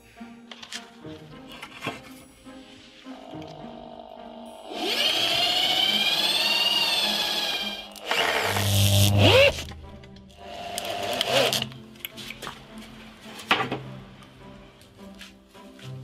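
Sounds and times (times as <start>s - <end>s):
background music: 0.0s - 16.0s
electric drill whining: 3.2s - 9.7s, 10.4s - 11.7s.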